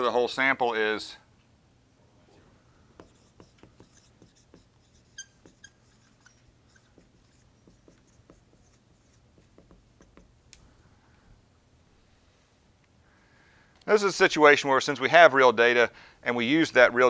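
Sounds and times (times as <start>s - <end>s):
marker squeaking on a whiteboard: 3.0s - 10.3s.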